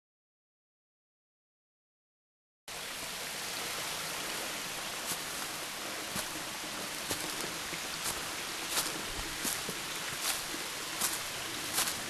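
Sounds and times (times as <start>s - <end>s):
falling water rushing: 2.7s - 12.0s
footsteps on leaf litter: 5.0s - 5.5s, 6.1s - 12.0s.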